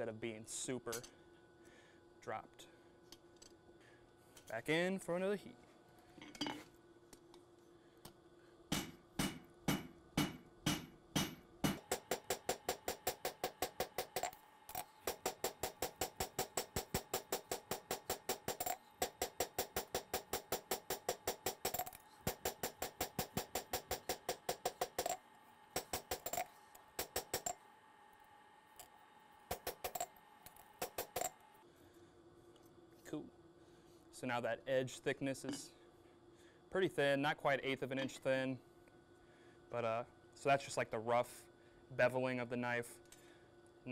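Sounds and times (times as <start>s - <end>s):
hammer striking blade on anvil: 8.7s - 25.2s.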